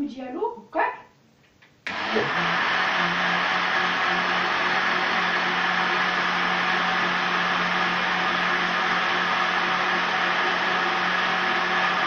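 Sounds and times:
blender motor whirring: 1.9s - 12.0s.

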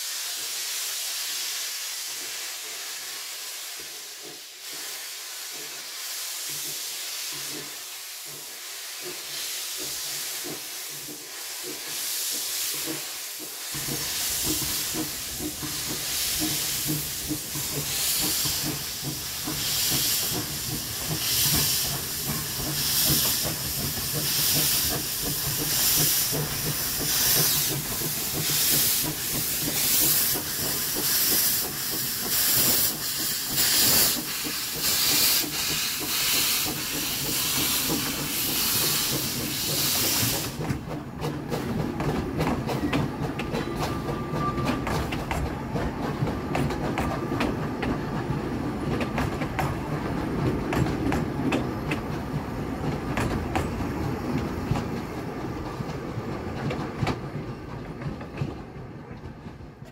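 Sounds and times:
steam locomotive hissing: 0.0s - 59.9s
train coaches rumbling: 0.1s - 59.9s
wheels clicking over rail joints: 6.5s - 59.9s.

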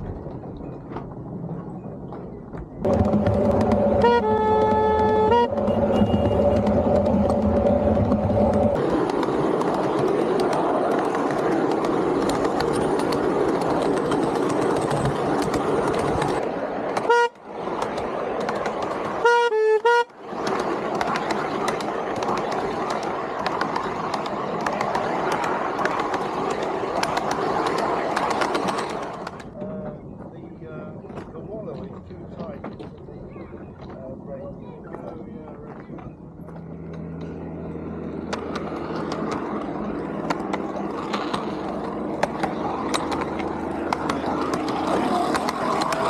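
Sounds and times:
miniature railway locomotive running: 2.8s - 30.1s, 34.6s - 46.0s
locomotive horn toots: 3.4s - 7.8s, 17.0s - 17.4s, 19.2s - 20.2s.

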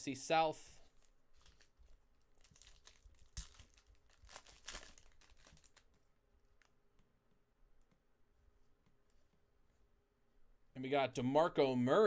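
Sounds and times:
foil wrapper crinkling and tearing: 1.3s - 6.0s.

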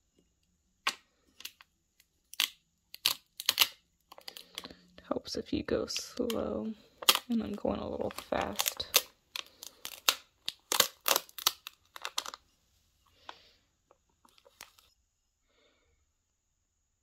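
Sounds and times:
plastic tape crackling: 2.3s - 4.8s, 5.9s - 12.4s, 14.2s - 14.9s.

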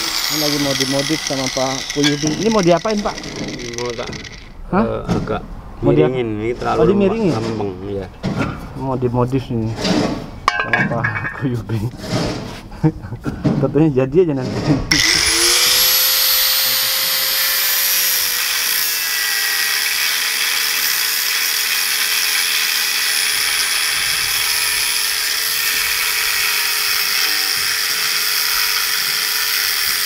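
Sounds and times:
angle grinder cutting metal: 0.0s - 4.6s, 14.9s - 30.0s.

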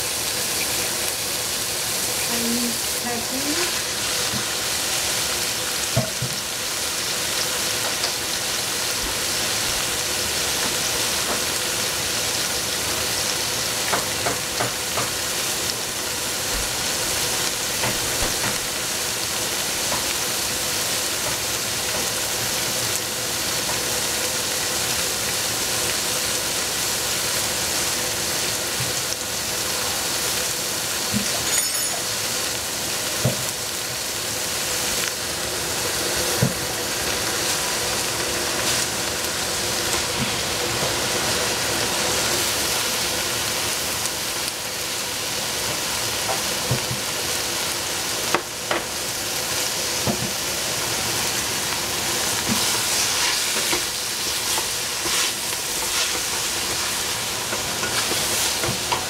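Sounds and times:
food sizzling in a pan: 0.0s - 59.0s.

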